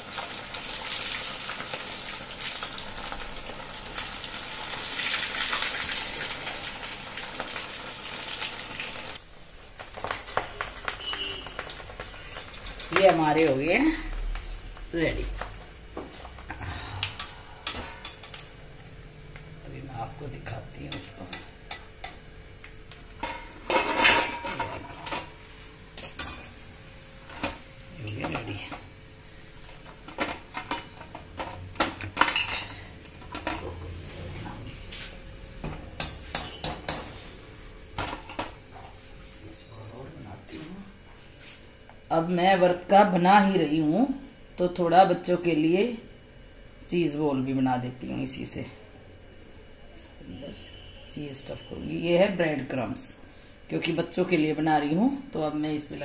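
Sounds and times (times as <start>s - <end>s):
food deep-frying in hot oil: 0.0s - 15.8s
metal kitchenware clattering: 23.2s - 25.3s, 30.2s - 33.7s.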